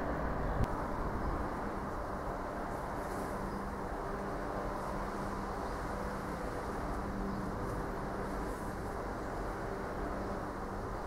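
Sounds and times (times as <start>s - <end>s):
distant train rumble: 0.0s - 11.0s.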